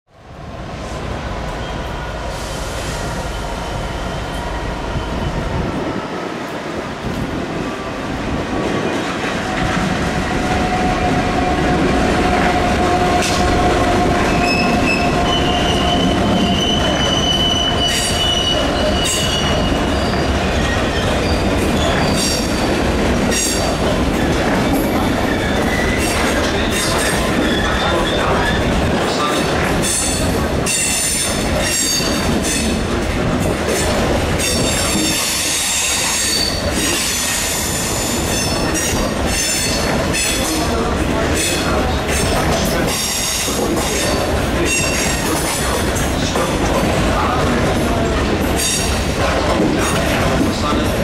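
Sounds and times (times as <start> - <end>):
diesel locomotive rumble: 0.4 - 30.7
wheels squealing: 10.4 - 22.7, 25.2 - 28.7.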